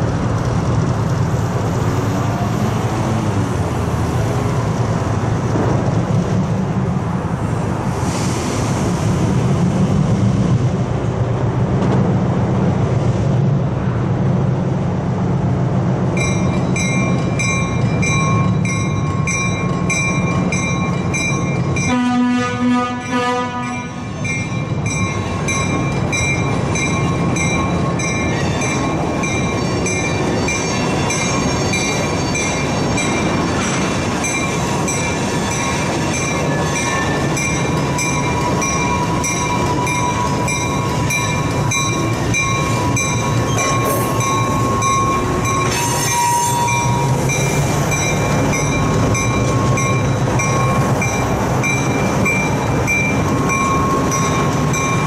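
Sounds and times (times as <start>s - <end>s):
diesel locomotive engine: 0.0s - 55.0s
wheel squeal: 42.3s - 47.4s.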